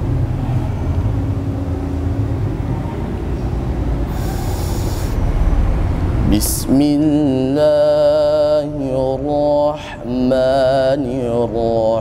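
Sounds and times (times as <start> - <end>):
loud low rumble: 0.0 - 12.0.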